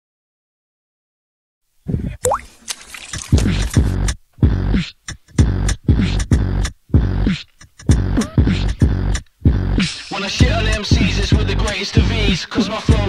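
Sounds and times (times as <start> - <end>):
hip hop beat with deep bass: 3.4 - 13.0.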